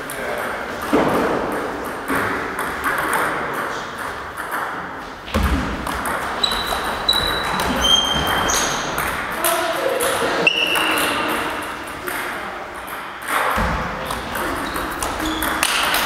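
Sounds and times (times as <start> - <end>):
shoes squeaking on floor: 6.2 - 9.3, 10.2 - 11.6, 14.0 - 16.0.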